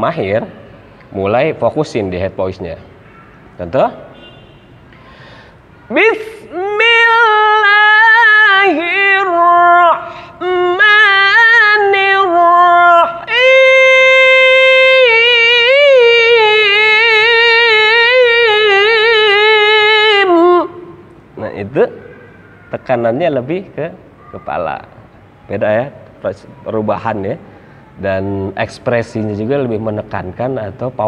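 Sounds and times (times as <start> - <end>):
man singing recitation: 5.9 - 22.0, 28.0 - 31.0.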